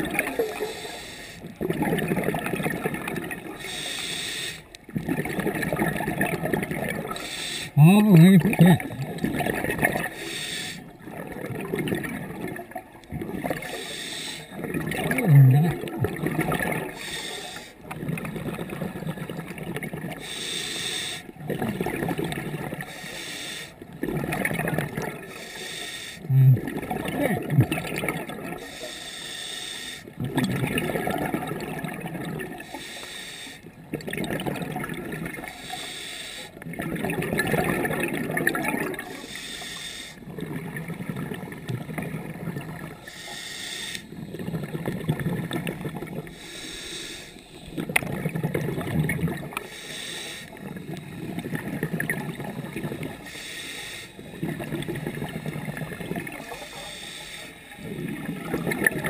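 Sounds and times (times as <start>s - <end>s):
exhaled bubbles gurgling underwater: 0.0s - 59.0s
scuba regulator inhale hiss: 0.5s - 1.4s, 3.6s - 4.7s, 7.2s - 7.8s, 10.1s - 10.8s, 13.7s - 14.5s, 17.0s - 17.8s, 20.2s - 21.3s, 22.9s - 23.8s, 25.3s - 26.3s, 28.6s - 30.1s, 32.6s - 33.7s, 35.6s - 36.6s, 39.1s - 40.2s, 43.0s - 44.2s, 46.3s - 47.8s, 49.6s - 51.3s, 53.2s - 54.5s, 56.6s - 57.8s.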